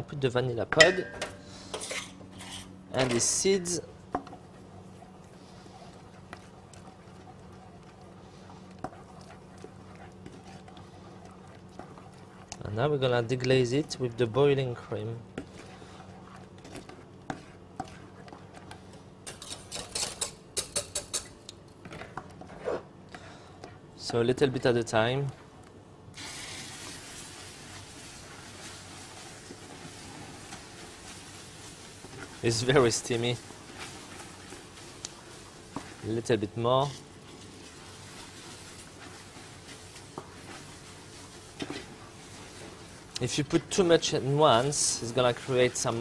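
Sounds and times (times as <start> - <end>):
wooden spoon stirring: 0.6 - 25.8, 26.6 - 46.0
kitchen utensils and pans clattering: 0.8 - 2.6
caramel sizzling in a pot: 0.8 - 20.4, 26.1 - 46.0.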